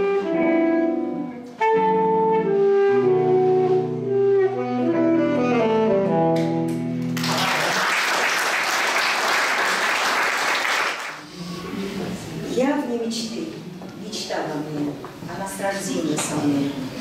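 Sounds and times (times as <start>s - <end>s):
saxophone playing slow melody: 0.0s - 7.1s
audience applauding: 7.0s - 11.2s.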